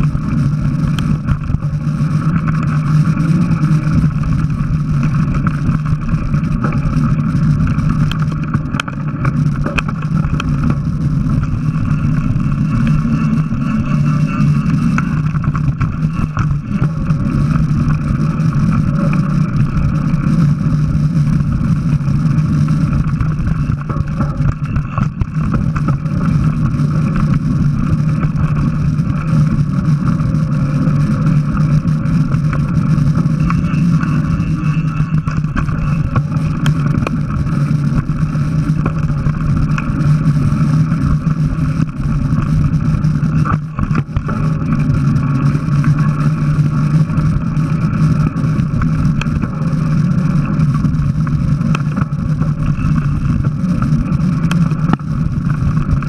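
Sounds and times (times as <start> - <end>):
constant low hum: 0.0 - 56.0
tyre and trail noise: 0.0 - 56.0
wind on microphone: 0.0 - 56.0.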